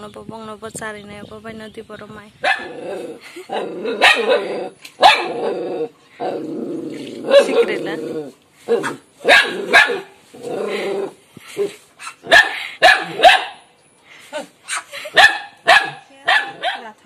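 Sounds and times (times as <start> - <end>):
dog barking: 2.4 - 2.7, 4.0 - 5.4, 8.7 - 10.1, 12.0 - 13.6, 14.7 - 17.0.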